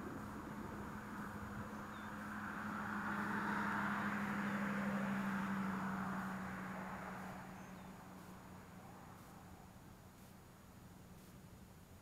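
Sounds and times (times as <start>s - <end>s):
distant engine passing by: 0.0s - 10.5s.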